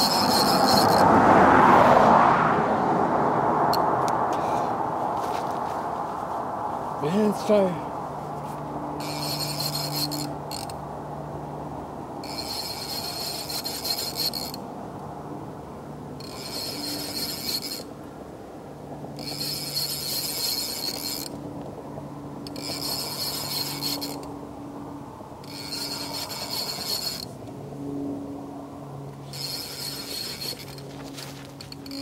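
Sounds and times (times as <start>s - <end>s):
fishing reel rasping: 0.0s - 1.1s, 9.0s - 10.8s, 12.2s - 14.6s, 16.2s - 17.9s, 19.2s - 21.4s, 22.4s - 24.3s, 25.4s - 27.4s, 29.2s - 30.9s, 31.6s - 32.0s.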